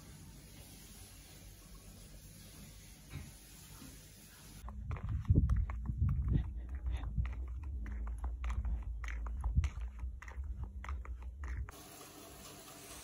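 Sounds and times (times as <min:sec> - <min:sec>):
sandal footsteps on paving: 0:04.6 - 0:11.8.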